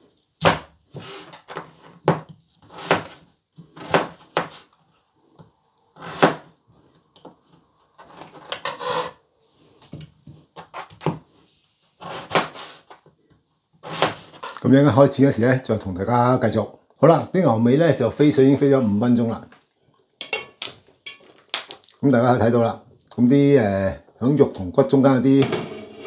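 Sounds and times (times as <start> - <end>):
knife chopping potato on board: 0.4 - 4.6, 6.0 - 6.5, 12.0 - 12.8, 13.8 - 14.4.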